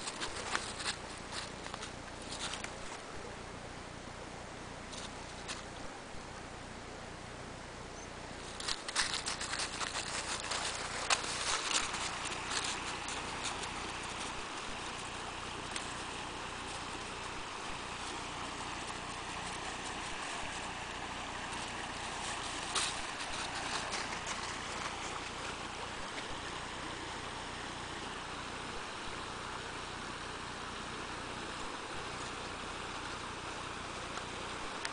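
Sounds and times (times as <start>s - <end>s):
footsteps crunching dry leaves: 0.0s - 3.0s, 8.4s - 27.5s
creek water rushing over rocks: 8.5s - 34.9s.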